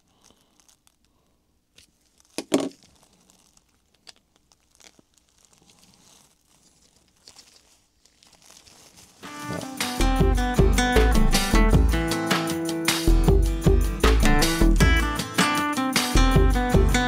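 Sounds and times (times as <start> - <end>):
plastic pieces ticking and rustling: 0.0 - 1.2.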